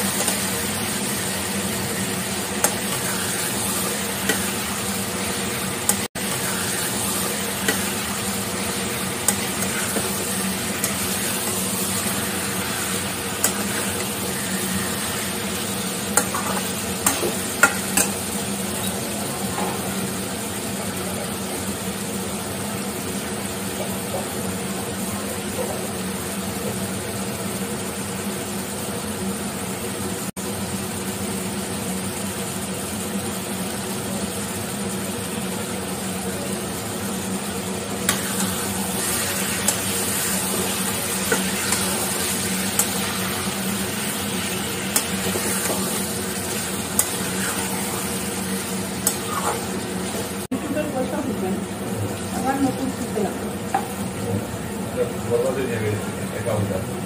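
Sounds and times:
food sizzling in a pan: 0.0s - 56.8s
metal spatula scraping a pan: 44.8s - 49.8s.

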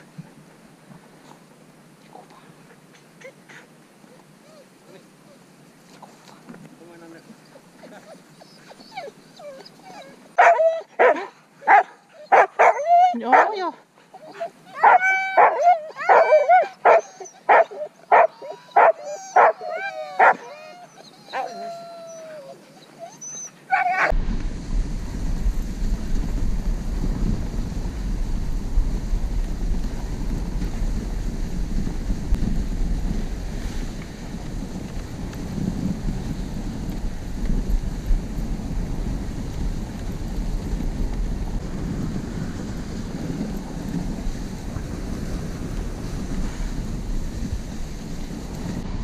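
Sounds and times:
dogs whining and yipping: 7.5s - 13.5s, 14.2s - 24.1s
wind noise on microphone: 14.2s - 20.6s, 23.9s - 49.0s.

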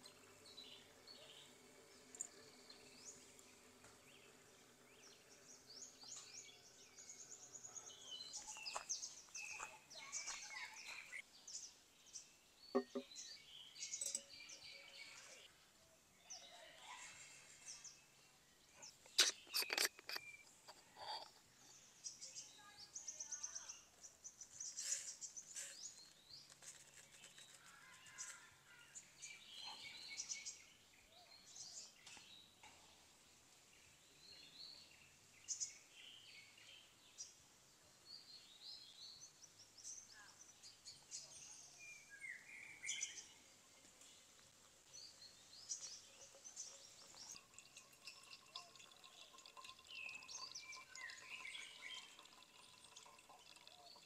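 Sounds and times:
birds chirping and calling: 5.0s - 11.7s.

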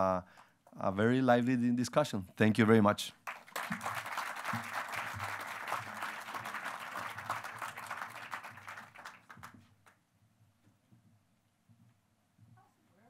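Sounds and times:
audience applauding: 3.2s - 9.7s.

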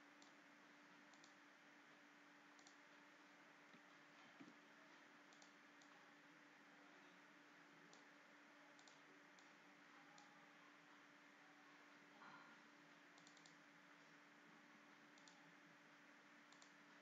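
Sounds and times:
faint electrical hum: 0.0s - 17.0s
computer mouse clicks: 0.2s - 0.4s, 1.0s - 1.4s, 2.5s - 2.8s, 5.2s - 6.0s, 7.9s - 8.1s, 8.7s - 10.4s, 13.1s - 13.7s, 15.1s - 15.5s, 16.5s - 16.8s.

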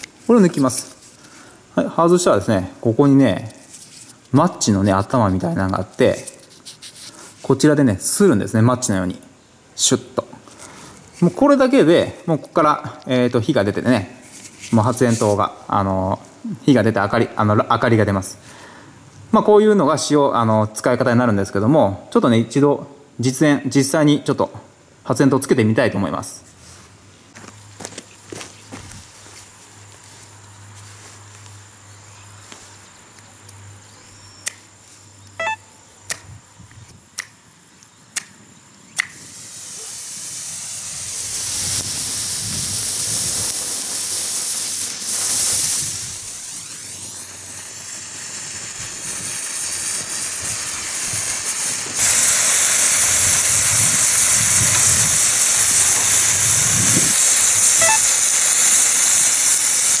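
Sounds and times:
flare burning with loud hiss: 0.0s - 19.3s, 36.0s - 60.0s.

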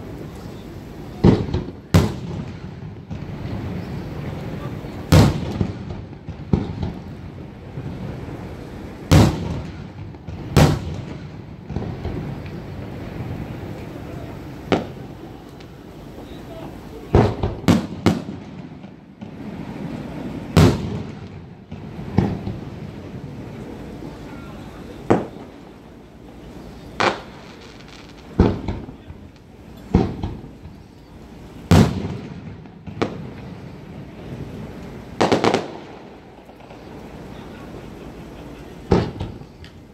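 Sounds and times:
sharp firework bang: 1.2s - 7.1s, 9.1s - 12.5s, 20.5s - 22.6s, 28.3s - 29.1s, 29.9s - 30.4s, 31.7s - 33.4s, 35.2s - 36.0s, 38.9s - 39.5s
firework boom: 17.1s - 23.4s, 31.7s - 33.7s
firework shells bursting: 26.8s - 30.9s, 31.6s - 33.7s, 34.7s - 37.3s, 38.8s - 39.9s.

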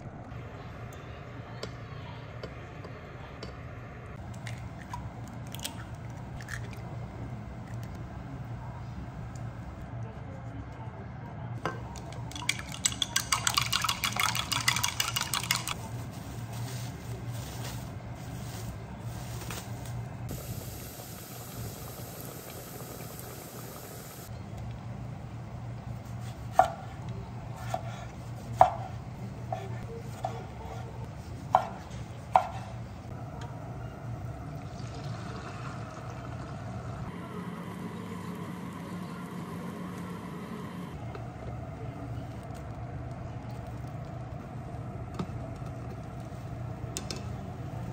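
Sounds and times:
chopsticks beating eggs in glass: 12.0s - 15.8s
egg sizzling in a pan: 20.3s - 24.3s.

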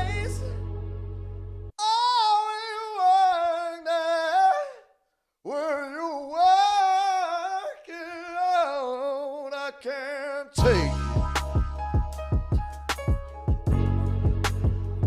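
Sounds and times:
high voice singing with vibrato: 0.0s - 0.6s, 1.8s - 4.9s, 5.5s - 11.2s.

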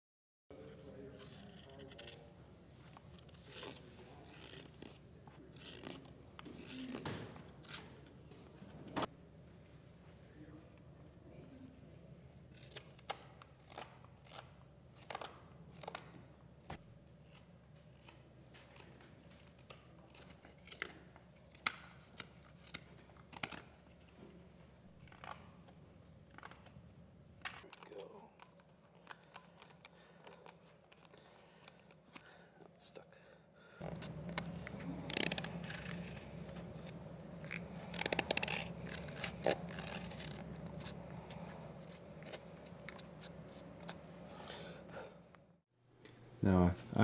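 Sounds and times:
low room hum: 0.5s - 47.0s
faint scraping and crunching: 33.8s - 45.0s.

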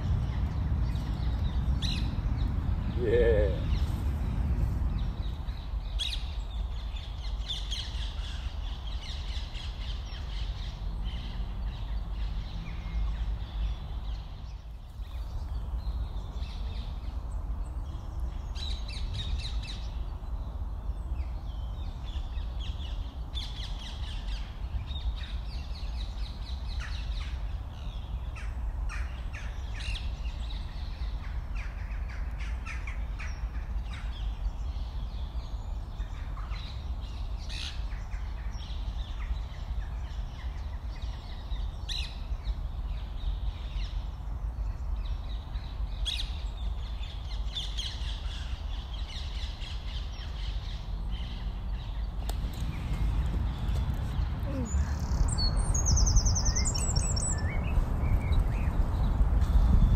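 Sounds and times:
birds calling: 0.0s - 4.3s, 46.1s - 59.9s.

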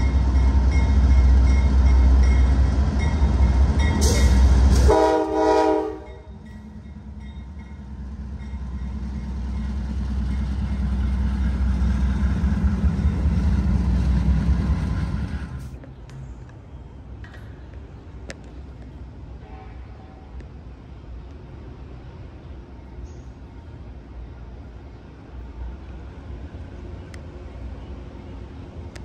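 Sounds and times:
diesel locomotive engine rumble: 0.0s - 29.0s
train horn: 4.0s - 6.4s, 19.4s - 20.4s.

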